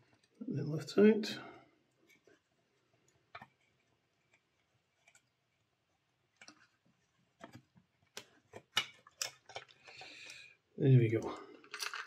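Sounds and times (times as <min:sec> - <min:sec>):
clicks of plastic parts handled: 0:07.4 - 0:10.4.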